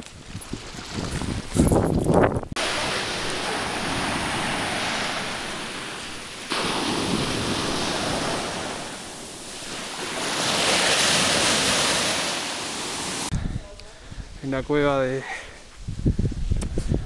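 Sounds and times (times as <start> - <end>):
surf washing on sandy beach: 2.6 - 13.3.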